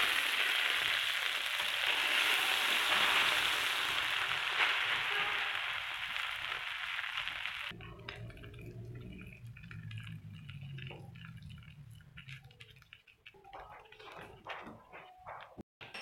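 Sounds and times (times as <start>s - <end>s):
bread sizzling on grill pan: 0.0s - 7.8s
spatula wet scraping: 7.8s - 15.6s.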